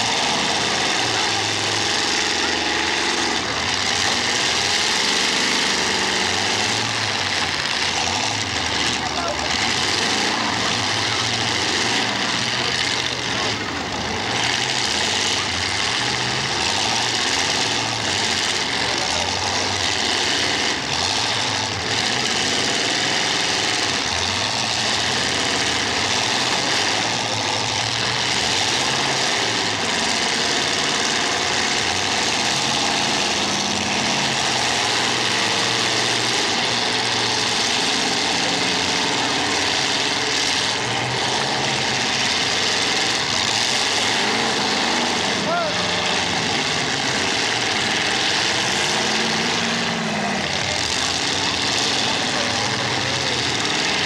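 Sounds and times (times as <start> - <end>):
race car engines passing: 0.0 - 54.0.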